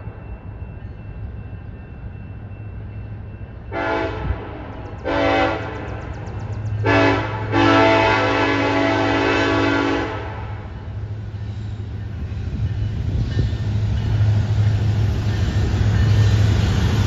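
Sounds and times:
locomotive rumble: 0:00.0 - 0:17.0
train horn: 0:03.7 - 0:06.0, 0:06.8 - 0:10.8.

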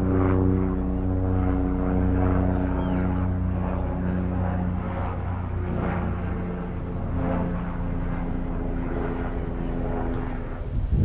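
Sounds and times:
low engine hum: 0:00.0 - 0:11.0.

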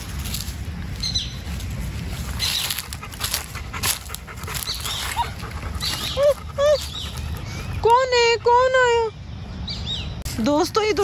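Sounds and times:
dog whining: 0:04.7 - 0:07.2.

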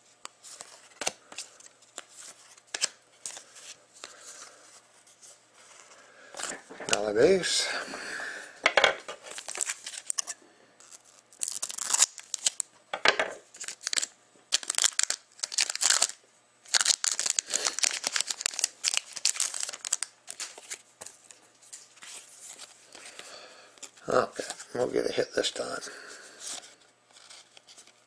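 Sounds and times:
foil wrapper tearing and crinkling: 0:09.3 - 0:12.7, 0:13.6 - 0:20.8.

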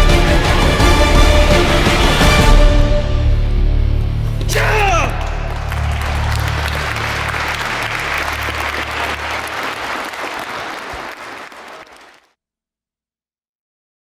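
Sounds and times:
background music: 0:00.0 - 0:11.9
crowd applauding: 0:05.0 - 0:12.3.

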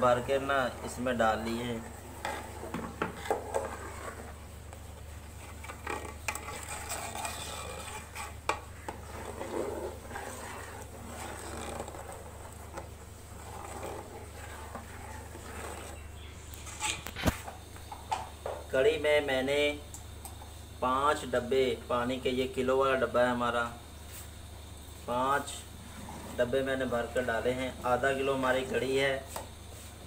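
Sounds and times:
ladle stirring batter: 0:00.0 - 0:18.0
steady low hum: 0:00.0 - 0:30.0.

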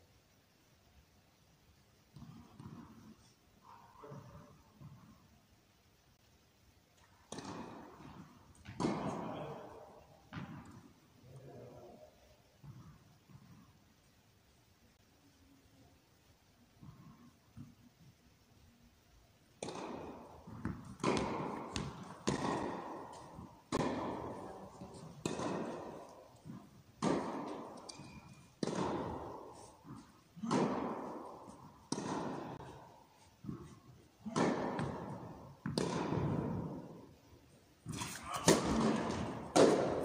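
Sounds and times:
tennis balls being hit: 0:02.1 - 0:03.3, 0:07.0 - 0:11.9, 0:19.6 - 0:40.0.

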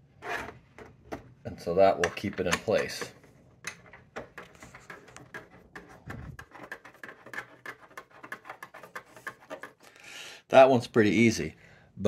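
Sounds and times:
small handling clicks and rubs: 0:02.0 - 0:10.0.

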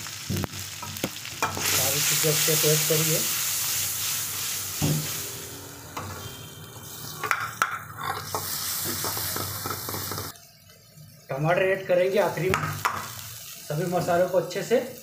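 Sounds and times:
onions sizzling in butter: 0:00.0 - 0:15.0
metal ladle stirring and scraping: 0:07.1 - 0:10.3.

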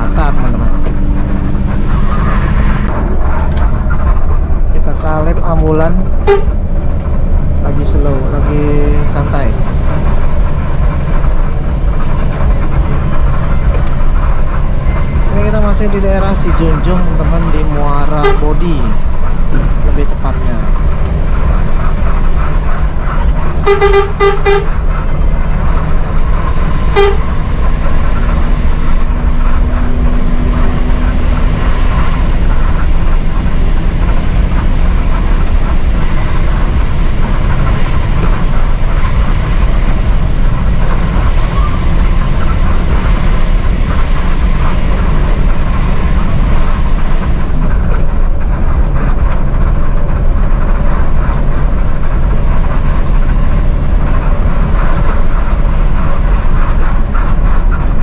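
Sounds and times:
bus diesel engine: 0:00.0 - 0:58.0
road noise: 0:00.0 - 0:58.0
horn toots: 0:06.2 - 0:06.7, 0:17.9 - 0:19.0, 0:23.1 - 0:25.0, 0:26.4 - 0:32.8.

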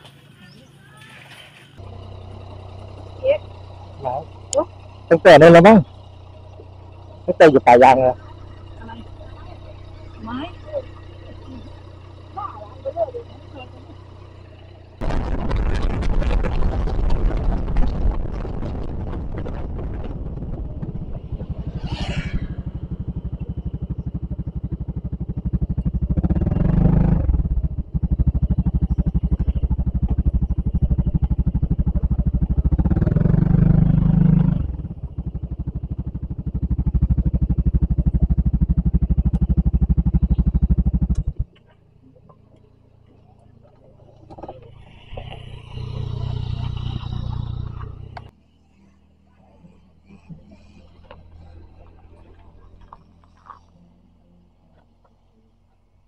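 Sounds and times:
scooter engine running: 0:00.0 - 0:55.7
wind noise: 0:15.0 - 0:24.0.

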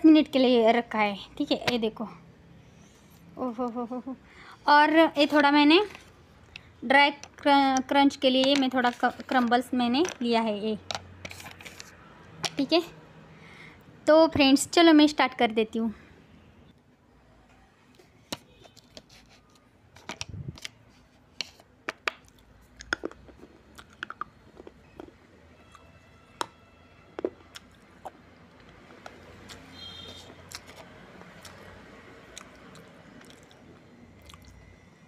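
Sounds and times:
crunchy chewing of dry clay: 0:22.3 - 0:25.9, 0:27.2 - 0:31.7, 0:32.3 - 0:34.7.

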